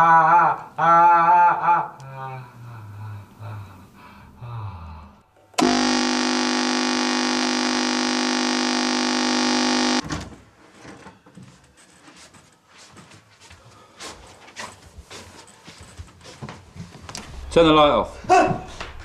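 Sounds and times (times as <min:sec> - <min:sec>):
alarm clock buzzing: 0:05.6 - 0:10.0
faint knocks and rustles: 0:10.1 - 0:17.3.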